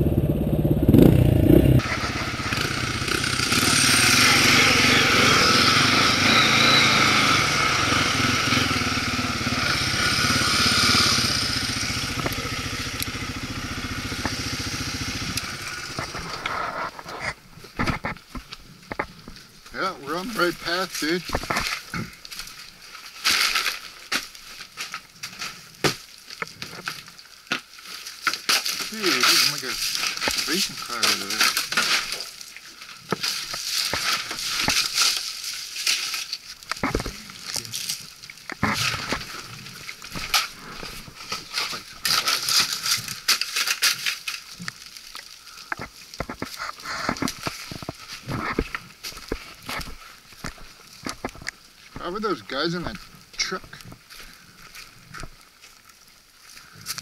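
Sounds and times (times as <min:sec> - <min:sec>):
twigs snapping and crackling: 0:21.0 - 0:52.0, 0:52.8 - 0:57.0
boots crunching on debris: 0:21.0 - 0:57.0.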